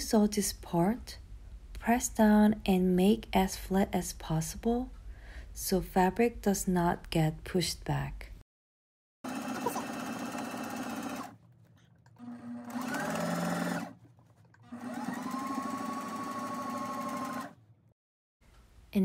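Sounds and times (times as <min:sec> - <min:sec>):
sewing machine stitching: 0:09.3 - 0:11.4, 0:12.1 - 0:17.6.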